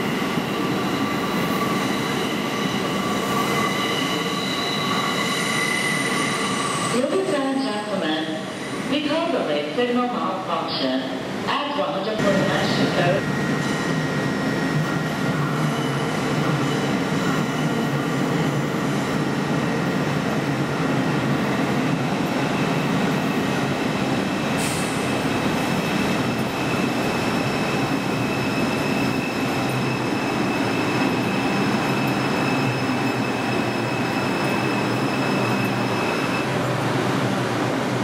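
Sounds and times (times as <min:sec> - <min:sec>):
subway train rumbling on rails: 0:00.0 - 0:38.0
high-pitched squeal: 0:00.4 - 0:07.0.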